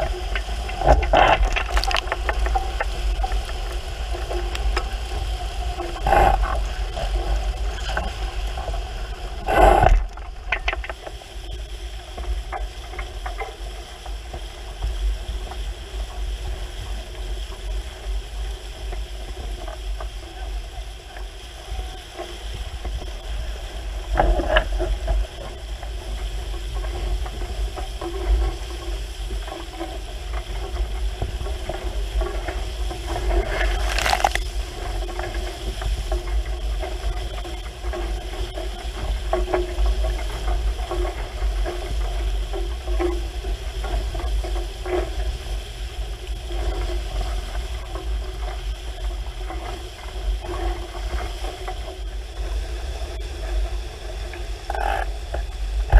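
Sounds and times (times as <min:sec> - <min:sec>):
boat hull rushing through water: 0:00.0 - 0:55.9
wind rumbling on microphone: 0:00.0 - 0:55.9.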